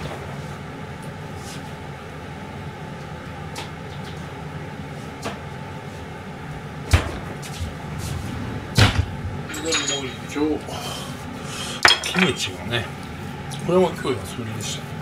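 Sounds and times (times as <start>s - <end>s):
low kitchen hum: 0.0s - 15.0s.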